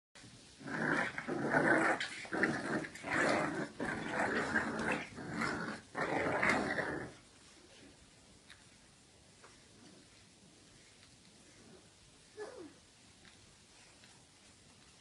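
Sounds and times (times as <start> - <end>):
puppies growling: 0.6 - 7.2.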